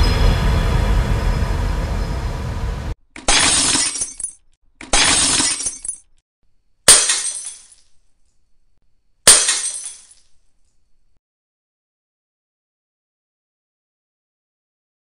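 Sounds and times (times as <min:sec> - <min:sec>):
glass shattering: 0:03.2 - 0:06.1, 0:06.9 - 0:07.9, 0:09.3 - 0:10.3.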